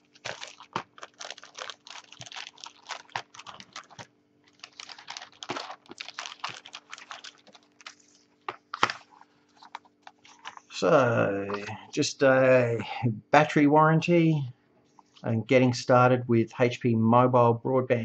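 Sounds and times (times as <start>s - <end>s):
paper rustling: 0.0s - 10.7s
plastic bag crinkling: 0.0s - 10.7s.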